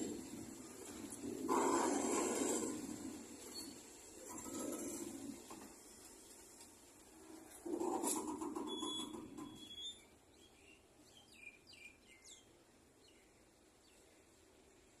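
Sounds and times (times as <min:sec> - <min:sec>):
low noisy sound: 0:00.0 - 0:15.0
bird chirps: 0:08.6 - 0:14.1.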